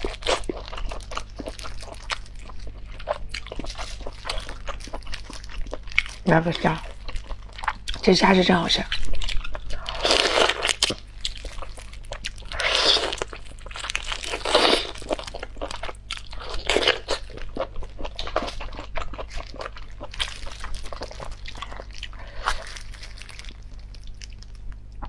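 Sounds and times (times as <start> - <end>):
shrimp shells crunching: 8.9 - 24.7.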